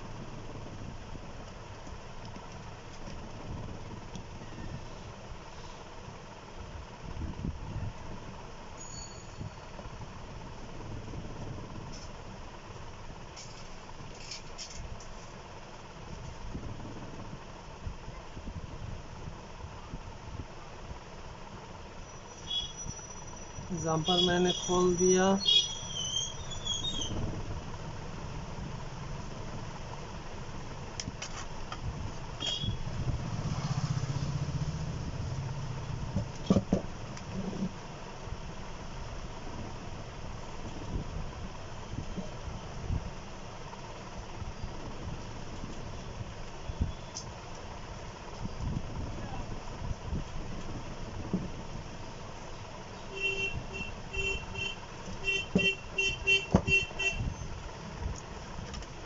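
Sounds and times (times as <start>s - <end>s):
engine idling: 0.0s - 59.0s
brief squeak: 8.8s - 9.6s, 25.5s - 27.2s
horn short beeps: 32.4s - 32.8s, 53.1s - 57.3s.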